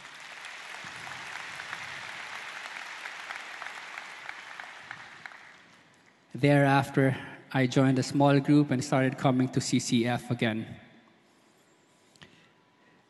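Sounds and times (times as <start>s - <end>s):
large audience applauding: 0.0s - 6.2s.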